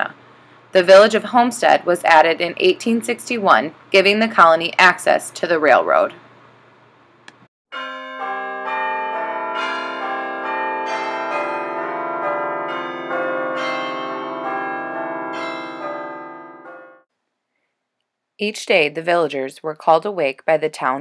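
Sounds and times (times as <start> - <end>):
church bells ringing: 7.7 - 17.1.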